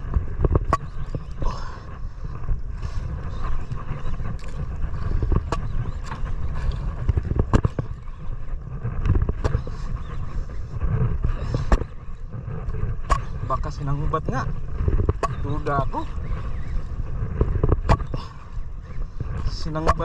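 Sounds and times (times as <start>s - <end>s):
boat engine rumble: 0.0s - 20.0s.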